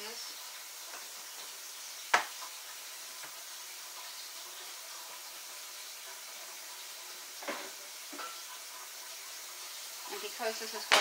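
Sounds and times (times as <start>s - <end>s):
kitchen tap running: 0.0s - 11.0s.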